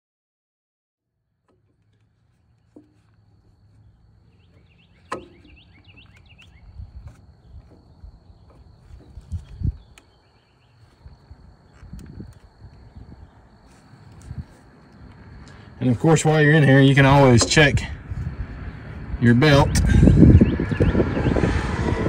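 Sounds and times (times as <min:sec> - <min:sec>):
bird chirps: 0:02.8 - 0:12.0, 0:18.6 - 0:21.5
fitting click: 0:04.5 - 0:07.8.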